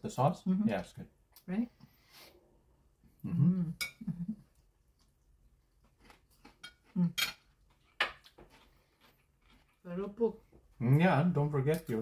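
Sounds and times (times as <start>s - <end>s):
murmured vocal sounds: 3.2s - 4.4s
cutlery clinking against plate: 6.6s - 8.2s.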